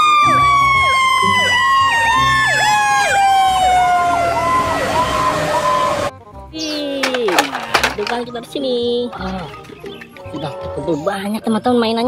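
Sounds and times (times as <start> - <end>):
siren gliding down in pitch: 0.0 - 6.1
yelping siren: 0.0 - 6.1.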